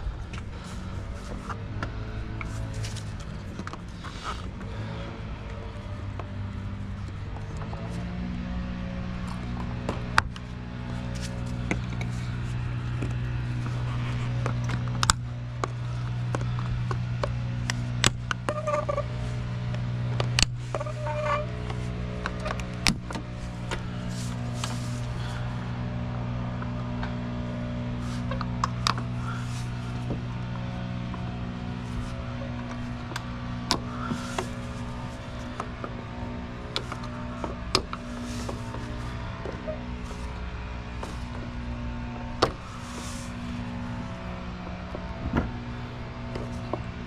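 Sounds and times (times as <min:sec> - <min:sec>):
steady low tones: 0:00.0 - 0:47.0
sharp clicks and knocks: 0:14.3 - 0:19.0.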